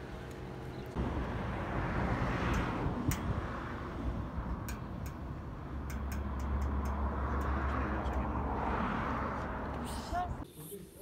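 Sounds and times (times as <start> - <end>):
wind rumbling on microphone: 0.9 - 10.4
sharp ticks: 4.6 - 8.3.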